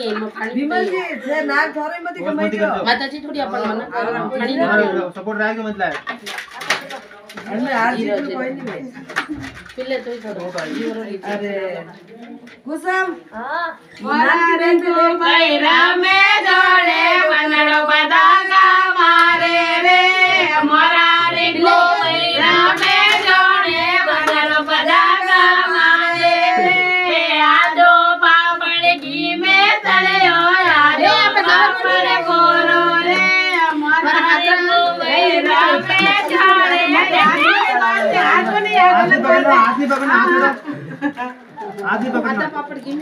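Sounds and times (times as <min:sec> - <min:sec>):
high-pitched voices singing: 0:13.8 - 0:39.8.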